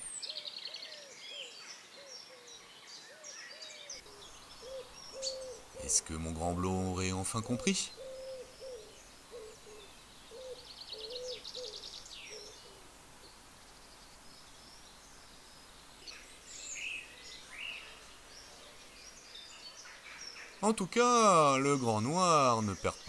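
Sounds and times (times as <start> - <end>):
faint outdoor background hiss: 0.0 - 23.0
low cooing bird notes: 0.2 - 13.3.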